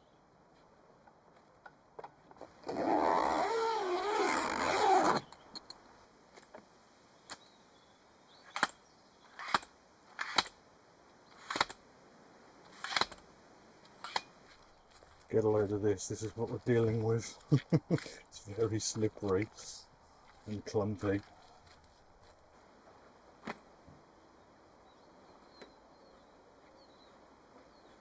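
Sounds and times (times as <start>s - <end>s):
tent cover zipped shut: 2.5s - 5.3s.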